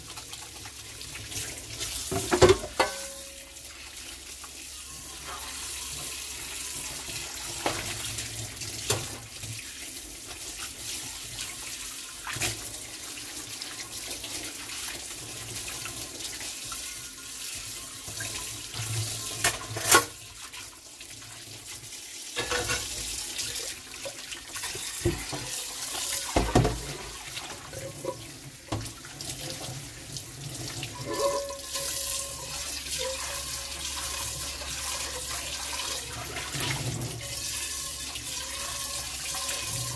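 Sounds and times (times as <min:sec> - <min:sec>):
pans knocking and clattering: 0:02.0 - 0:03.5, 0:22.4 - 0:23.1, 0:24.7 - 0:27.1, 0:31.0 - 0:32.4.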